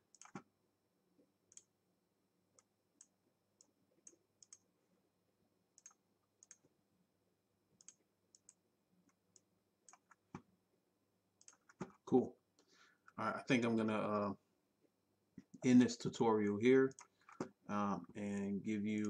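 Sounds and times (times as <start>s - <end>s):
faint mouse clicks: 0.1s - 0.5s, 1.5s - 1.7s, 2.6s - 4.7s, 5.8s - 6.7s, 7.8s - 10.5s, 11.4s - 12.0s, 16.9s - 17.6s.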